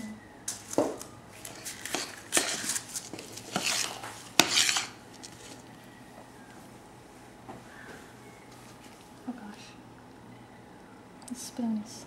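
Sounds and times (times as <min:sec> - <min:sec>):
spoon scraping a metal saucepan: 0:01.5 - 0:02.8, 0:03.4 - 0:05.0.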